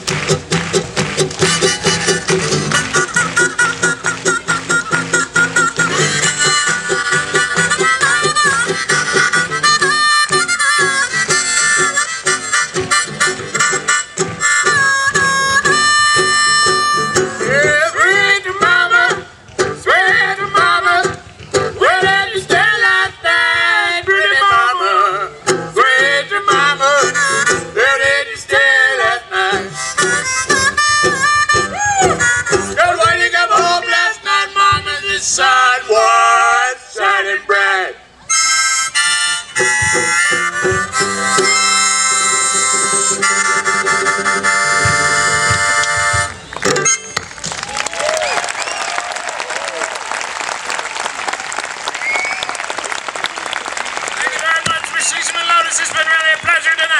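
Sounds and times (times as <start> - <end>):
banjo: 0.0 - 22.8, 25.0 - 27.8, 38.3 - 47.3
reedy lead melody: 0.0 - 23.1, 24.9 - 28.2, 28.8 - 34.8, 38.3 - 47.4
brass pipe horn: 40.2 - 47.2.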